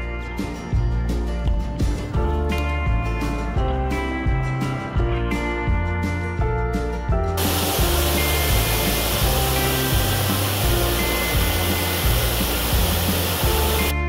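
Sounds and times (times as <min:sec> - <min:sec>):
strummed guitar music: 0:07.0 - 0:14.0
waterfall rushing over rocks: 0:07.4 - 0:13.9.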